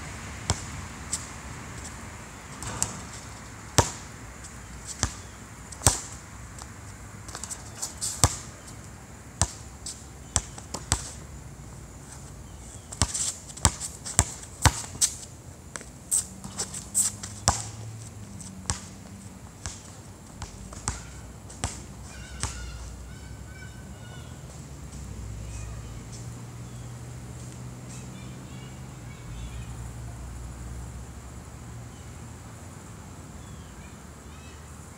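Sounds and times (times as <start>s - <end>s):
basketball bouncing on hard court: 0.5s - 0.7s, 2.6s - 4.0s, 8.2s - 8.4s, 13.0s - 15.0s, 17.3s - 17.7s, 20.4s - 22.6s.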